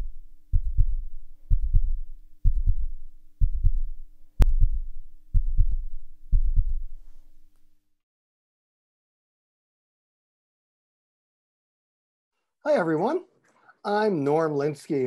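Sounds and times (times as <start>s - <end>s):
heartbeat lub-dub: 0.0s - 7.5s.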